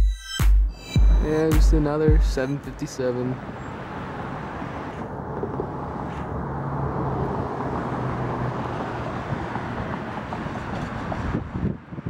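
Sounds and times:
distant jet airliner engines: 0:02.4 - 0:11.4.

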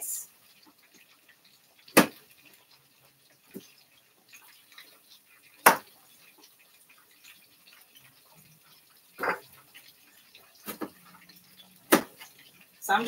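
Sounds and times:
chicken frying in oil: 0:00.0 - 0:13.0.

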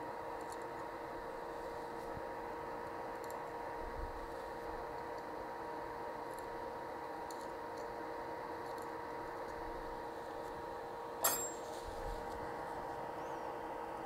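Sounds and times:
equipment hum: 0:00.0 - 0:14.0
faint constant tone: 0:00.0 - 0:14.0
metal tool clinking: 0:11.2 - 0:11.8.

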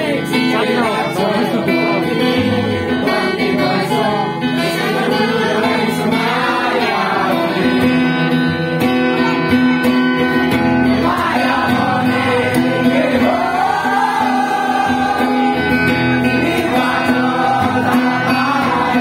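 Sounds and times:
fingerstyle acoustic guitar: 0:00.0 - 0:19.0
person singing: 0:10.9 - 0:19.0.

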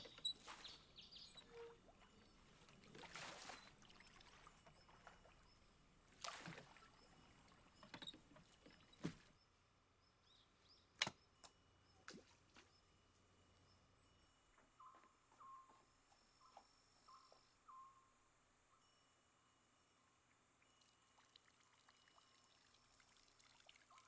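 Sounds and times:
oars splashing in water: 0:00.0 - 0:09.3.

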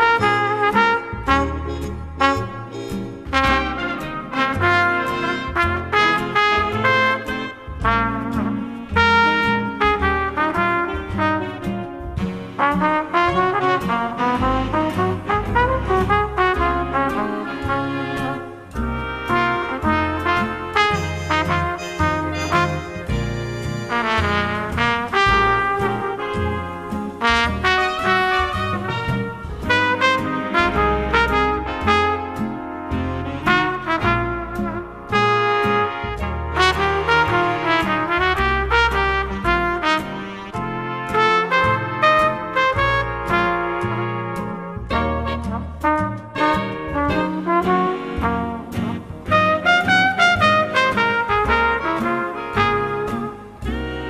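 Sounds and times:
big band jazz ballad: 0:00.0 - 0:54.0.

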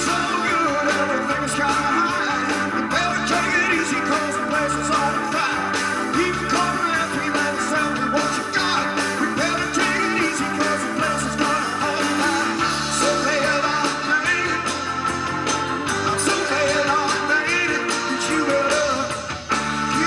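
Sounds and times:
live rock band playing: 0:00.0 - 0:20.0.

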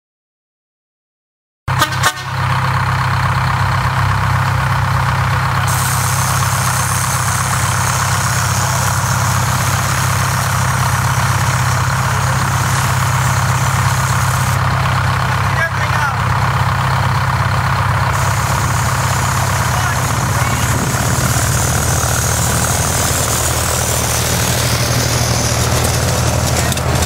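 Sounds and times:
locomotive engine idling: 0:01.7 - 0:27.0
steady hiss: 0:05.7 - 0:14.6.

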